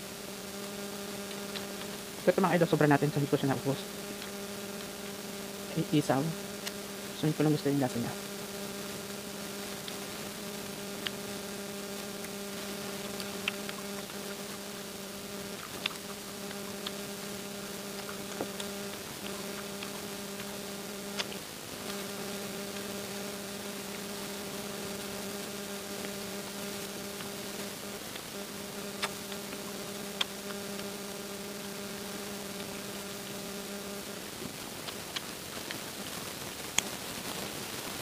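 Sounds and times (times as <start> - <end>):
electrical hum: 0.0 - 38.0
chewing clicks: 1.3 - 2.0, 11.0 - 11.2, 13.0 - 14.6, 15.5 - 17.2, 17.9 - 22.0, 28.9 - 30.8, 34.8 - 37.0.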